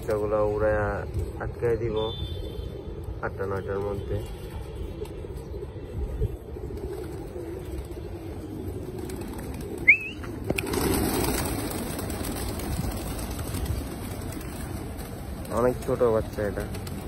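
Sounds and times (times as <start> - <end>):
pigeon wings flapping: 6.6 - 17.0
sharp snap: 10.4 - 10.8.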